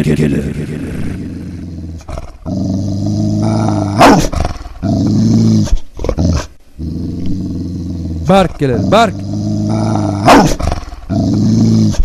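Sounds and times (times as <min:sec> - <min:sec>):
dog growling: 0:00.6 - 0:12.0
dog barking: 0:04.0 - 0:04.3, 0:10.2 - 0:10.6.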